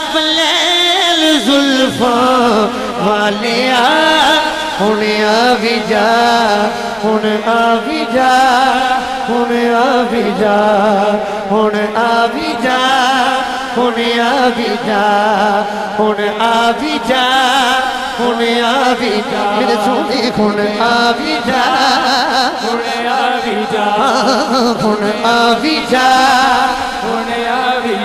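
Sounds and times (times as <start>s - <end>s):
lead singer singing: 0.0s - 28.0s.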